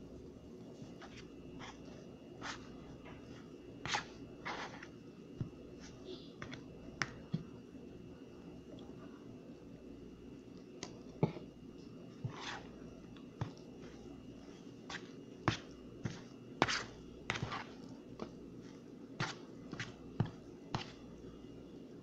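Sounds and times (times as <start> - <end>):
spoon scraping plastic bowl: 3.8 - 4.9, 14.9 - 17.9.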